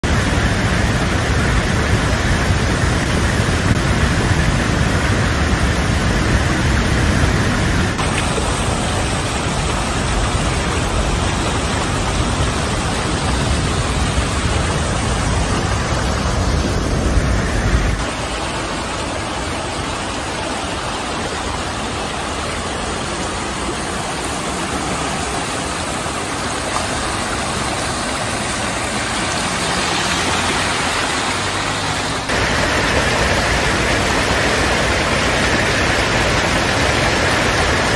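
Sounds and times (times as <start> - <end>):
water gushing and roaring: 0.0 - 37.9.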